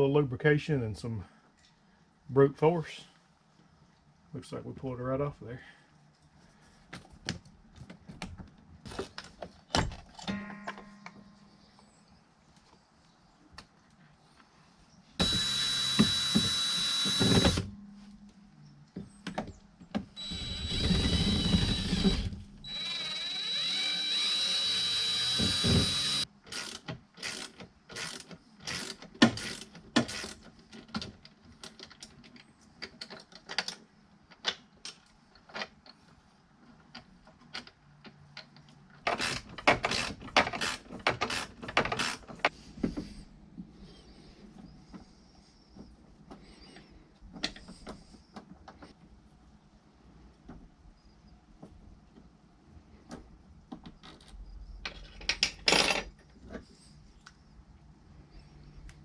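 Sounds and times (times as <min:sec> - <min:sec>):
cordless drill whining: 0:15.2 - 0:17.7, 0:20.1 - 0:30.3.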